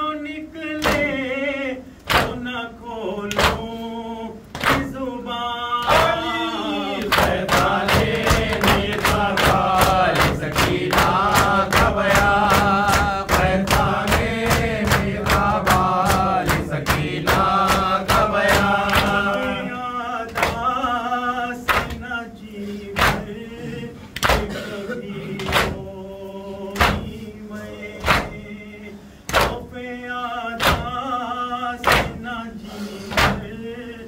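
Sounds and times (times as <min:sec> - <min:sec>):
men chanting in unison: 0:00.0 - 0:34.0
hands slapping on chests: 0:07.0 - 0:19.3.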